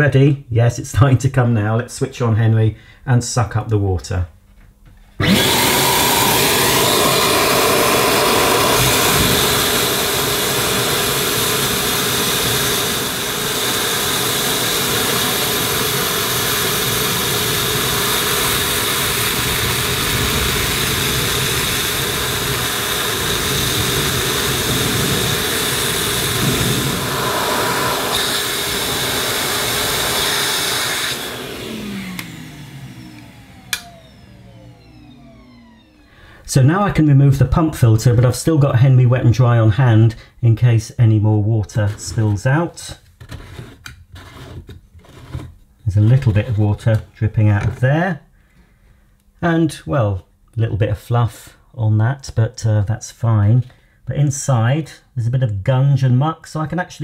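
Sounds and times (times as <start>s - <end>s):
vacuum motor winding down whine: 5.2s - 36.4s
vacuum cleaner motor running: 5.2s - 36.5s
click: 33.2s - 33.9s.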